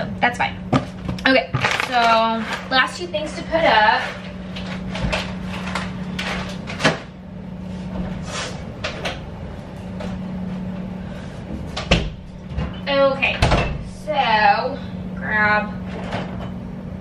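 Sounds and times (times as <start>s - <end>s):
steady low hum: 0.0s - 17.0s
groceries knocking and rustling: 0.7s - 7.1s.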